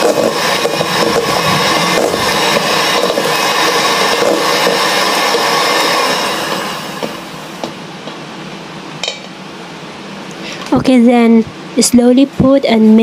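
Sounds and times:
electric hand mixer whining: 0.0 - 7.7.

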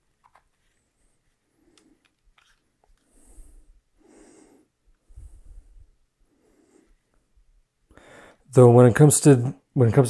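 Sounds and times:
recorder handling noise: 0.0 - 0.8, 1.7 - 3.1.

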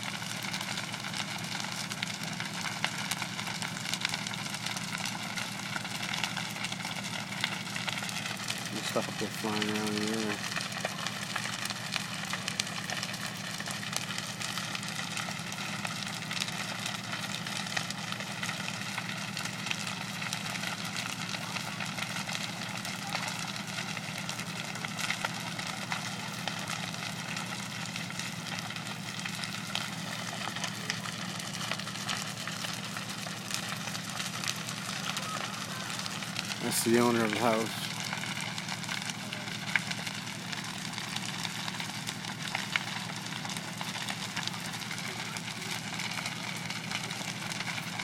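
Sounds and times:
fire crackling and popping: 0.0 - 48.0.

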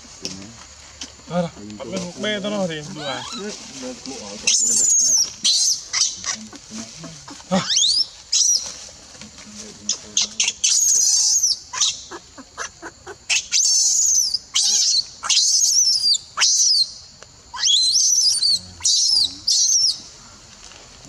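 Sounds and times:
baby monkey screaming: 2.8 - 3.6, 4.4 - 8.7, 10.2 - 16.9, 17.5 - 20.0.

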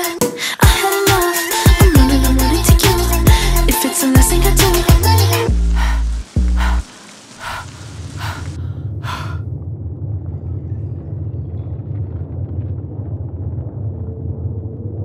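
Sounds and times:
low rumbling drone: 4.4 - 15.0
short hissing breaths: 5.7 - 9.4.

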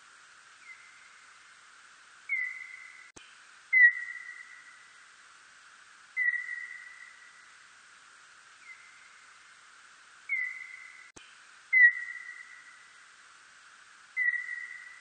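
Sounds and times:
steady hiss: 0.0 - 15.0
bat chirps: 2.3 - 3.1, 6.2 - 7.2, 10.3 - 11.1, 14.2 - 15.0.

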